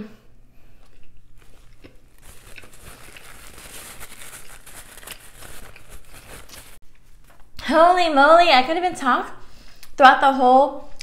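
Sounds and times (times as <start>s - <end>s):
chewing pizza crackle: 0.7s - 6.8s.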